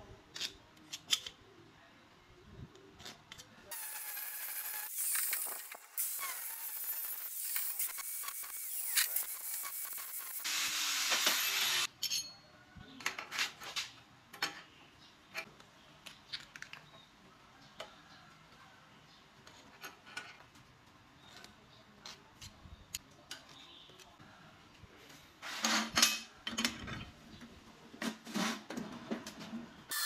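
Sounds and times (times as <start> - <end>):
angle grinder grinding steel: 3.7 - 11.9.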